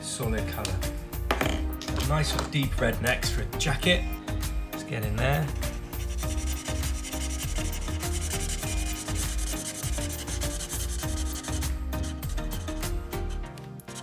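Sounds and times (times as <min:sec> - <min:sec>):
marker rubbing on paper: 0:05.4 - 0:14.0.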